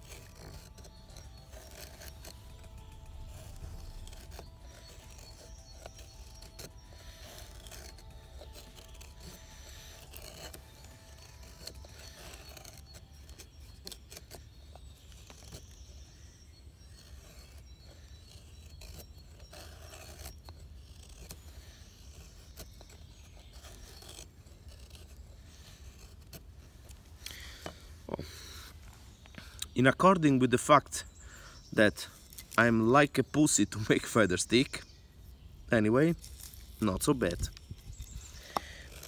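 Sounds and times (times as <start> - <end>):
knife scraping wood: 0.0 - 39.0.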